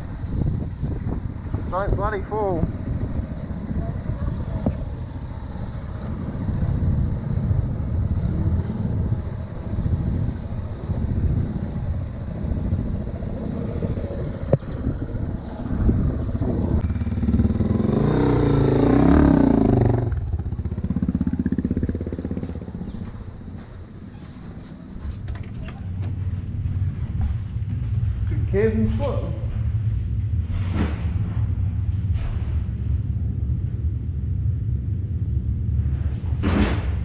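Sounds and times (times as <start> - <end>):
motorcycle engines running: 0.0 - 37.0
motorcycle revving past: 2.8 - 23.5.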